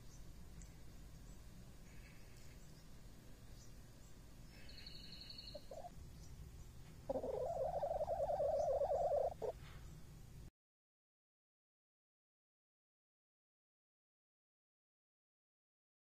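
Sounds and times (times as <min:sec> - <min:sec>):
hen warbling call: 0:05.0 - 0:05.9, 0:07.1 - 0:09.5.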